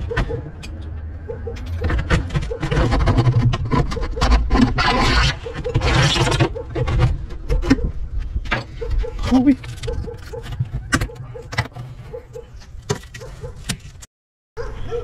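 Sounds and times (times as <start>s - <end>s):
blade scraping on glass: 1.6s - 7.7s.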